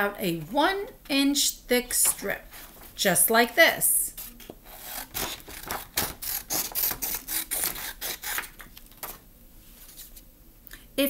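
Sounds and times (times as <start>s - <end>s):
scissors snipping paper: 4.2s - 9.2s.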